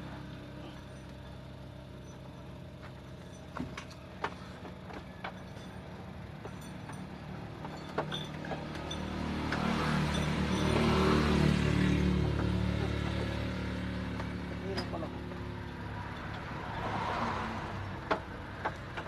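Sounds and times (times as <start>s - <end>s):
truck engine humming: 0.0s - 19.0s
clicks and knocks of hands working: 6.4s - 10.9s, 18.0s - 19.0s.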